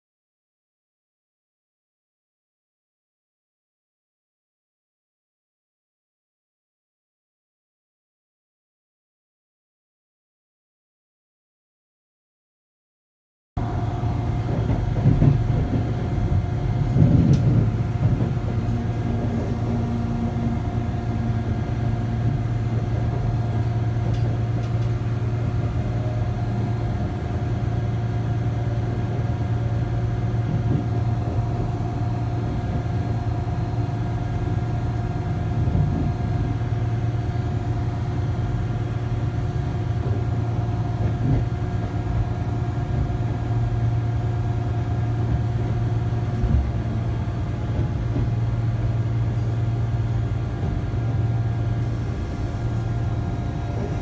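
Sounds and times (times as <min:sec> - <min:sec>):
train rumbles: 0:13.6 - 0:54.0
train running heard from inside: 0:13.6 - 0:54.0.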